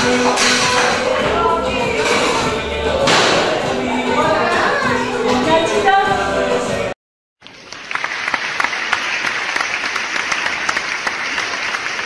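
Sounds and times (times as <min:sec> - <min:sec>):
music: 0:00.0 - 0:07.0
applause: 0:07.4 - 0:12.0.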